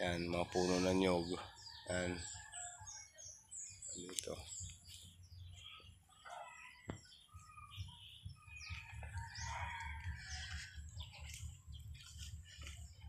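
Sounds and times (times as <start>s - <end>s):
birds chirping: 0.0s - 13.0s
rooster crowing: 8.6s - 10.9s.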